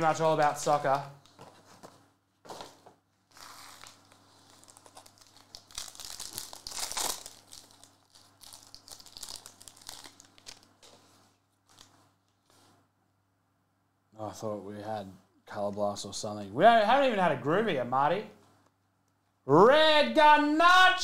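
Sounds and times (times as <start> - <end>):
foil wrapper tearing: 3.3 - 10.8
foil wrapper crinkling: 3.3 - 11.0.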